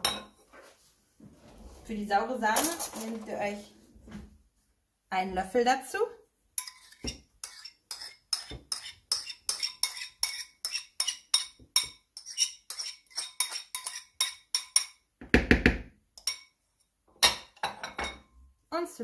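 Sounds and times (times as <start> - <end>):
teaspoon scraping ceramic bowl: 6.6 - 14.9.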